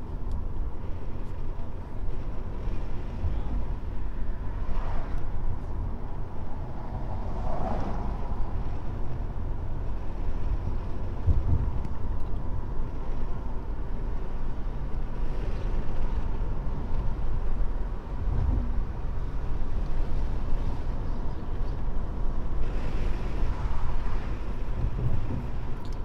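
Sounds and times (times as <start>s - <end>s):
car cabin road and engine rumble: 0.0s - 26.0s.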